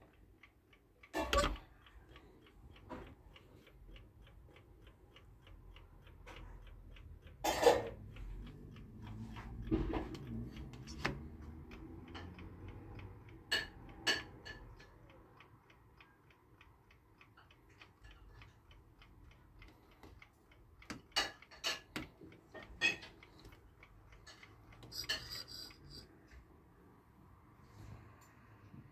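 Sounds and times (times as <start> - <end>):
mechanical clock ticking: 0.0 - 26.8
clock buttons clicking and knocking: 1.0 - 4.7, 6.1 - 14.9, 17.5 - 26.1.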